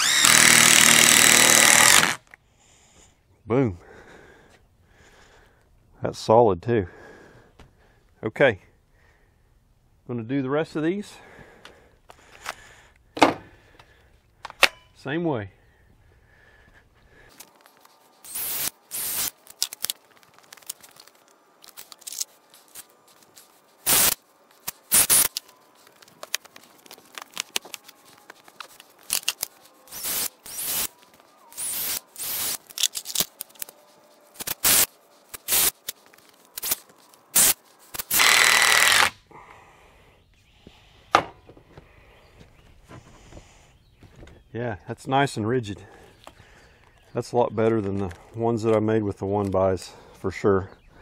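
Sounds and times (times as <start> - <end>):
cordless drill driving screws: 0.0 - 2.2, 18.2 - 19.8, 23.9 - 24.2, 24.8 - 25.4, 29.0 - 33.7, 34.4 - 35.8, 37.4 - 39.2.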